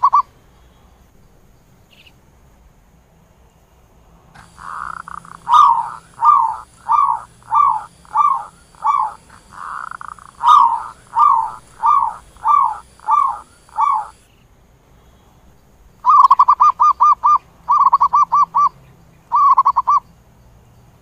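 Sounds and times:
dove trilling and cooing: 0.0s - 0.3s, 4.4s - 14.3s, 16.0s - 20.0s.

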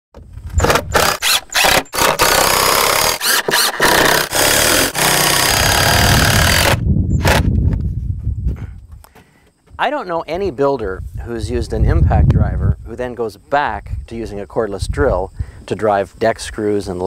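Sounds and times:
impact driver rattling: 0.6s - 7.5s.

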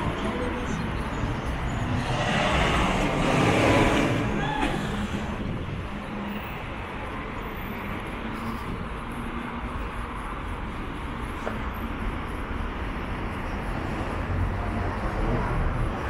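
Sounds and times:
vehicle passing: 0.0s - 6.4s
road traffic rush: 0.0s - 16.0s.

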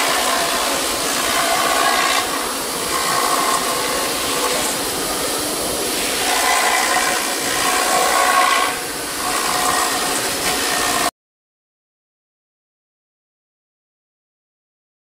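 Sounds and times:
router milling foam: 0.0s - 11.1s.

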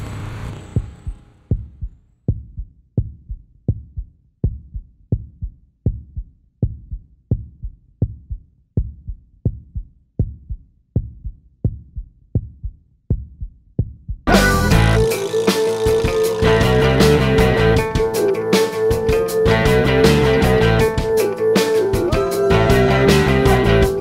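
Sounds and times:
heartbeat thumps: 0.8s - 15.1s.

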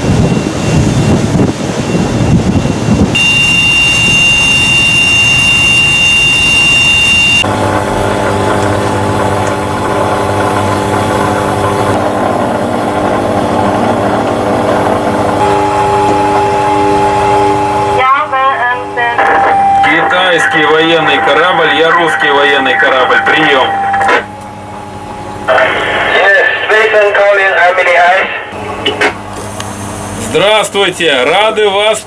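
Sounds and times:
rough rush of wind: 0.0s - 4.8s
high steady whine: 0.0s - 32.0s
low hum of ship engines: 0.0s - 32.0s.

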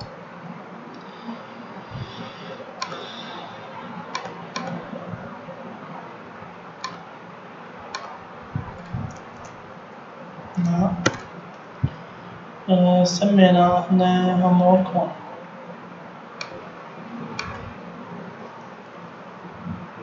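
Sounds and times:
computer mouse clicking: 2.8s - 3.2s, 4.1s - 4.8s, 6.8s - 7.0s, 7.9s - 8.1s, 8.7s - 9.6s, 10.5s - 11.3s, 17.4s - 17.7s.

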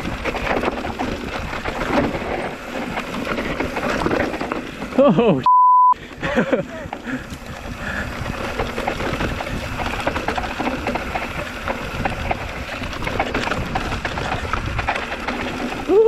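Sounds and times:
bike rattling and clicking: 0.0s - 5.4s, 6.0s - 16.0s
bike tyres on dirt and gravel: 0.0s - 5.4s, 6.0s - 16.0s
wind rushing on microphone: 6.3s - 10.1s.

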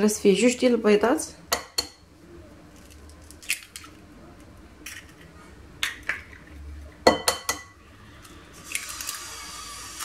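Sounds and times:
eggshells cracking against glass: 2.8s - 4.0s, 8.6s - 10.0s.

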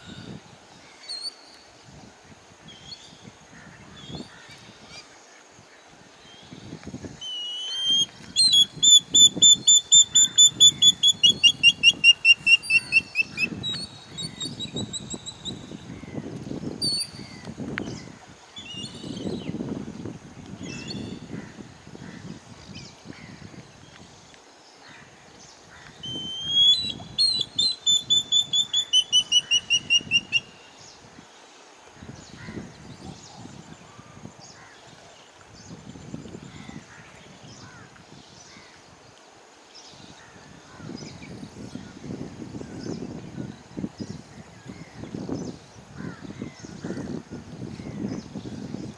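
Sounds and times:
faint wavering whistle: 7.2s - 15.5s, 26.0s - 30.5s
bird whistled calls: 7.2s - 15.7s, 26.0s - 30.7s.

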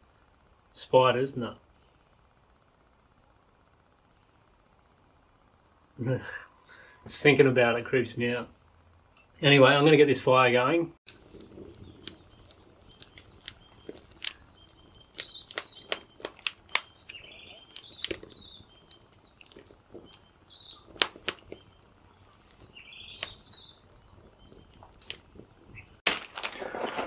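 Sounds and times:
birds chirping: 11.1s - 26.0s
campfire crackling and popping: 11.1s - 27.0s.

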